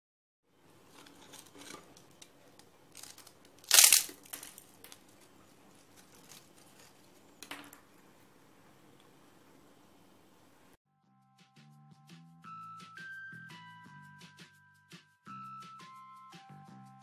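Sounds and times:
potato chips crackling and rustling: 0:00.9 - 0:07.4
loud crunch: 0:02.9 - 0:07.1.

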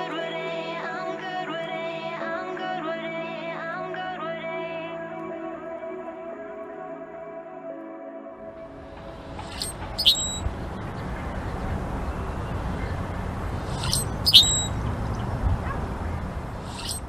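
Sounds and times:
low rumble: 0:08.6 - 0:16.9
blackbird squeaky calls: 0:09.2 - 0:17.0.

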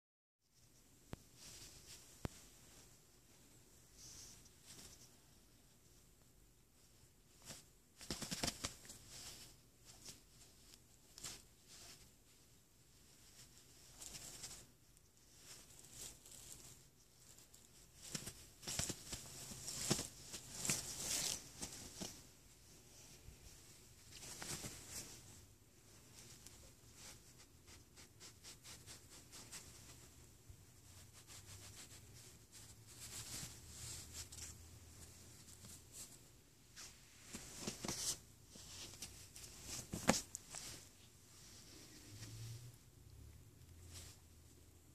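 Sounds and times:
cloth rustling and scuffing: 0:15.3 - 0:30.2, 0:30.9 - 0:42.4.

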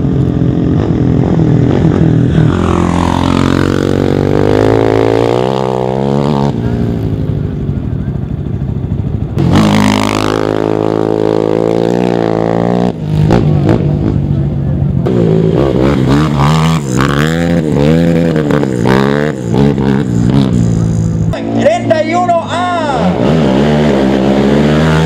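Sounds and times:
quads and dirt bike revving past: 0:00.0 - 0:07.3, 0:09.4 - 0:14.4, 0:15.0 - 0:25.0.

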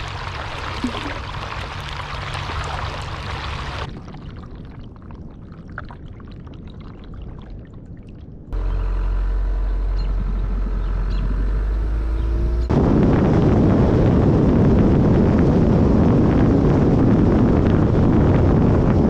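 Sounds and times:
paddle splashing: 0:00.0 - 0:03.9
wind rumble on microphone: 0:00.0 - 0:19.0.

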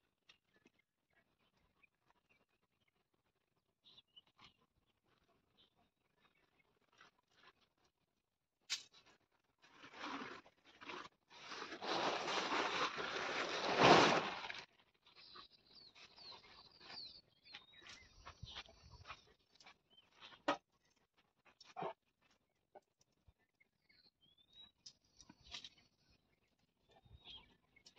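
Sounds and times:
tent fabric rustling and flapping: 0:09.0 - 0:14.7.

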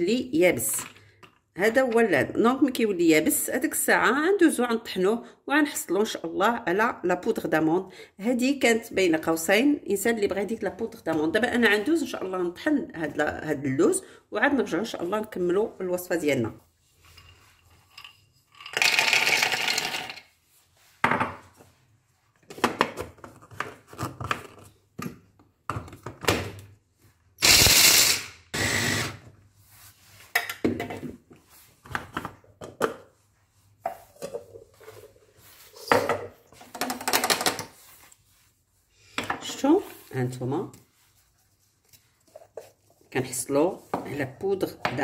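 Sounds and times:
almonds rattling into grinder: 0:18.7 - 0:20.2.

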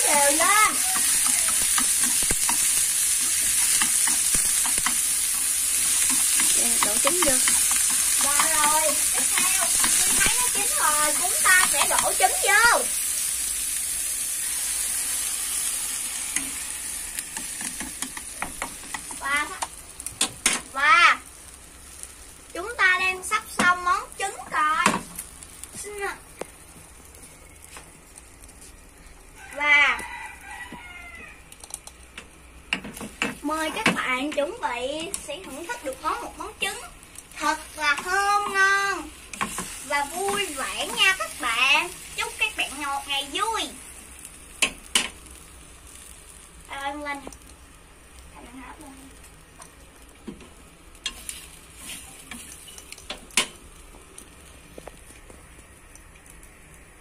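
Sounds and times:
eggs sizzling in a pan: 0:00.0 - 0:57.0
rooster crowing: 0:00.4 - 0:01.9, 0:15.8 - 0:17.4, 0:29.4 - 0:31.5
chopsticks clicking against pan: 0:00.9 - 0:12.2, 0:17.3 - 0:20.6, 0:31.5 - 0:35.9, 0:39.3 - 0:41.2, 0:52.2 - 0:53.6.

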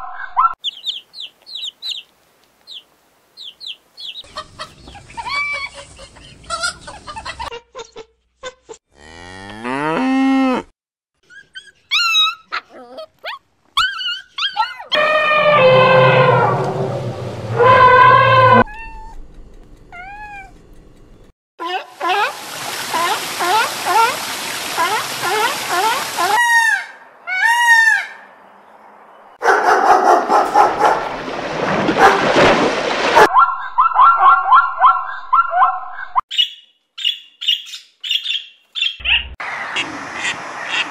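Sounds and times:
puppy whimpering and yipping: 0:11.3 - 0:15.0, 0:18.6 - 0:19.2, 0:19.9 - 0:20.6
long low rising call: 0:15.0 - 0:19.2
dog splashing through water: 0:22.0 - 0:26.4, 0:30.6 - 0:33.3.

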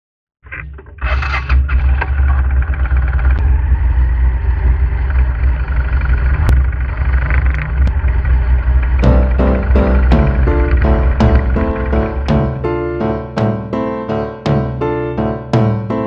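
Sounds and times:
low rumble of riding noise: 0:00.6 - 0:16.0
motorcycle engine running: 0:01.7 - 0:12.8.

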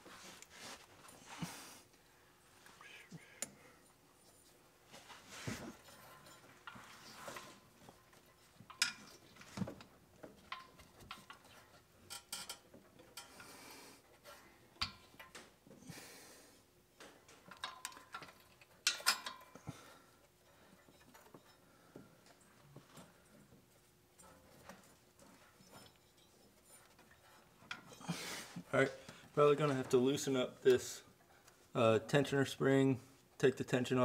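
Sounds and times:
belt clinking against metal pulleys: 0:05.7 - 0:13.6, 0:17.0 - 0:28.2.

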